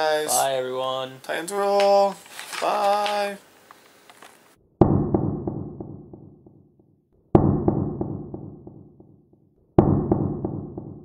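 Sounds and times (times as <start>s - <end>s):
deep booming impacts: 4.8s - 6.7s, 7.3s - 9.2s, 9.8s - 11.0s.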